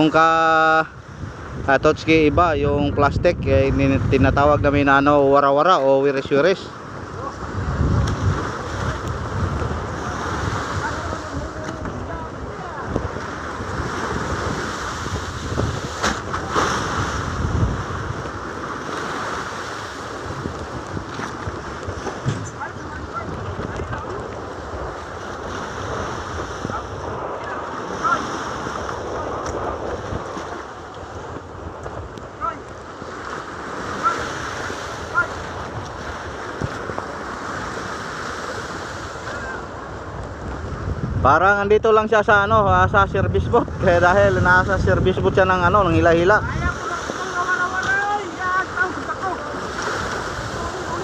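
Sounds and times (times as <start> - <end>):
waves on choppy sea: 0.0 - 51.0
wind blowing on microphone: 0.0 - 51.0
sharp knocks or splashes: 15.6 - 16.9.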